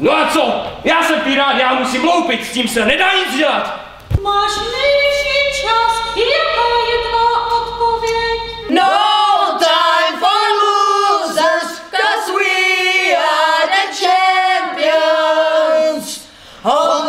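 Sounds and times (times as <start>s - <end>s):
voices singing without instruments: 4.2s - 17.0s.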